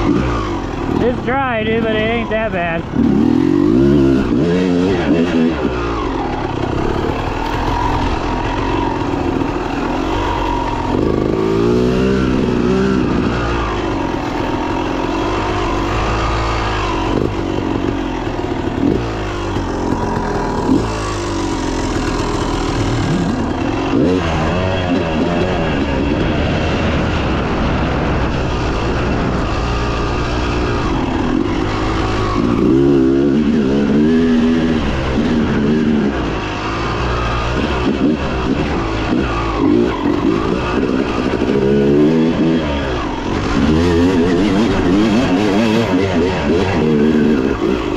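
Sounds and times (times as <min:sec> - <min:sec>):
dirt bike engine revving: 0:00.0 - 0:47.9.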